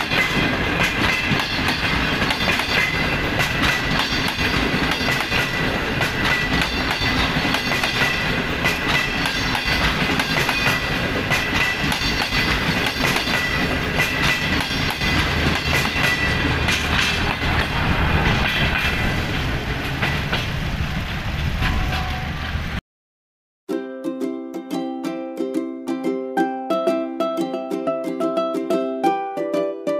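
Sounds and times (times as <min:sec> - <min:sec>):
wheels clicking over rail joints: 0:00.0 - 0:22.1
train wheels rumbling on rails: 0:00.0 - 0:22.8.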